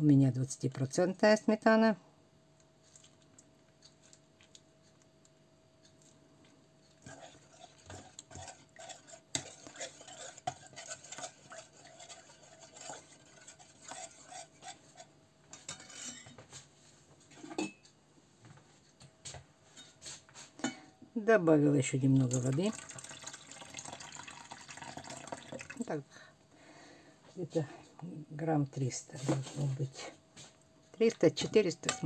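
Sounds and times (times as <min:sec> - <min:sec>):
metal spoon scraping enamel bowl: 0:07.0 - 0:16.3.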